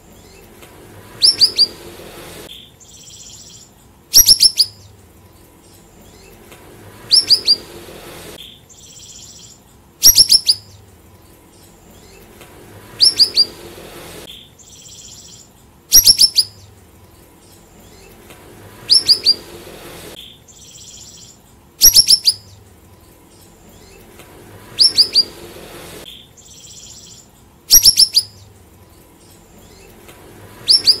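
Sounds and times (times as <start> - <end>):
songbird sharp descending notes: 0.2 - 3.6, 6.0 - 9.4, 11.9 - 16.7, 17.7 - 21.2, 23.6 - 26.1, 29.5 - 31.0.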